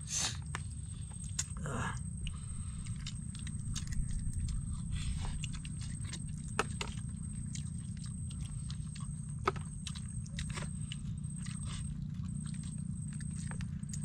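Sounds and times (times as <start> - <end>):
people chewing food: 0.0 - 14.0
low rumble: 0.6 - 14.0.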